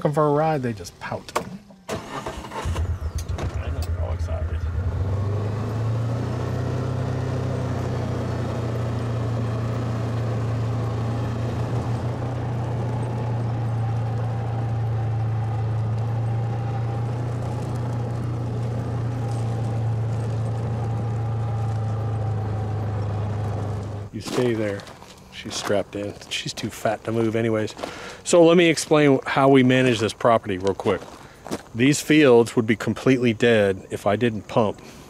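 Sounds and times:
utility vehicle engine running: 1.9s - 28.3s.

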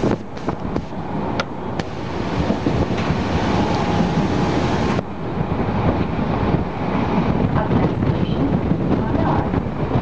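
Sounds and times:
train rumble and rattle: 0.0s - 10.0s
wind rushing in: 0.0s - 10.0s.

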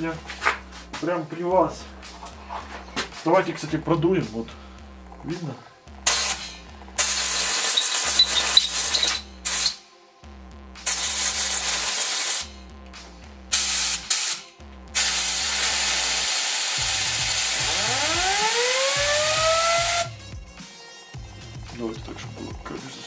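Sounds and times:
compressed air blow gun hissing: 6.1s - 9.8s, 10.9s - 12.5s, 13.5s - 20.1s.

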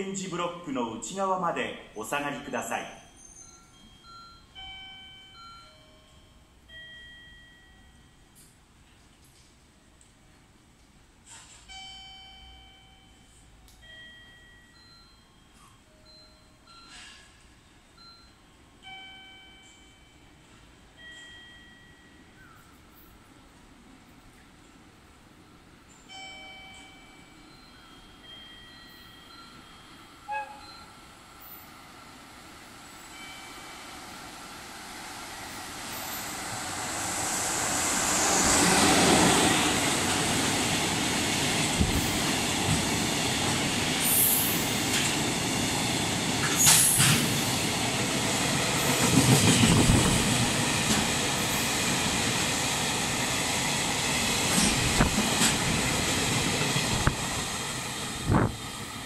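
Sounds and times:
electric locomotive passing: 12.3s - 59.0s
train wheels rumbling: 33.9s - 59.0s.

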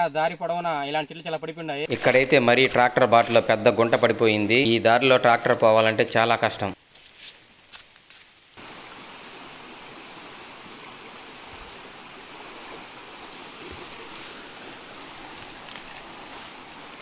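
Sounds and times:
stream water babbling over stones: 8.5s - 17.0s.

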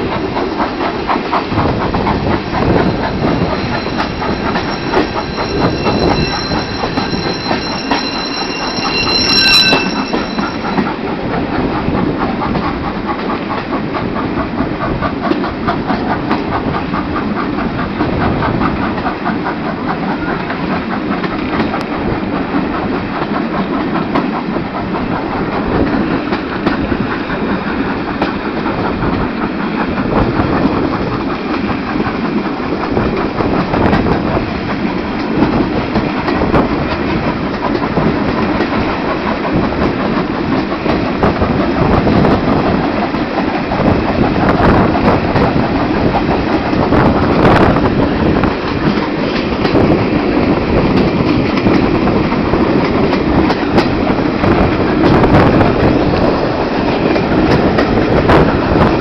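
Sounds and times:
rhythmic wheel clatter: 0.0s - 59.0s
train wheels on rails: 0.0s - 59.0s
high wheel squeal: 2.2s - 11.1s.

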